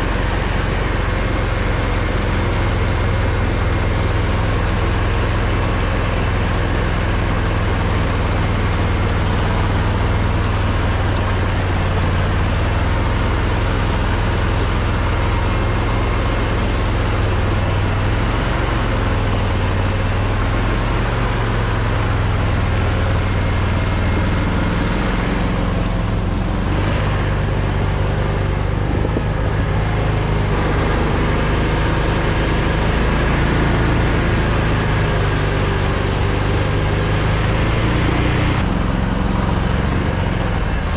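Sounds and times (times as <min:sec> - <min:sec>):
vehicle engine droning: 0:00.0 - 0:40.9.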